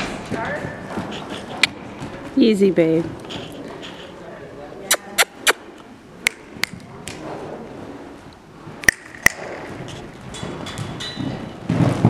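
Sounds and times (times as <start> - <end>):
person clicking tongue: 4.9 - 5.6.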